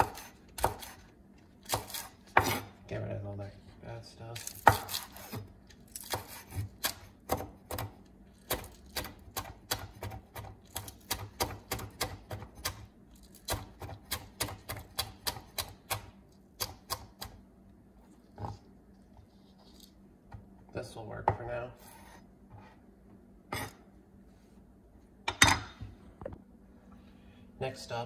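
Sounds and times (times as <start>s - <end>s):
cleaver chopping on wooden board: 0.0s - 1.0s, 6.1s - 12.8s.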